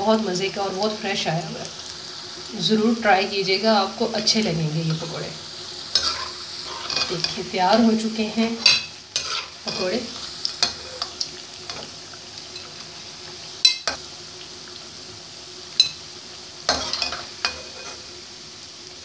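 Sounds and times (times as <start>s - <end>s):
deep-frying sizzle: 0.0s - 19.0s
metal spoon clinking against pan: 6.0s - 6.2s, 13.6s - 14.0s, 15.8s - 16.0s.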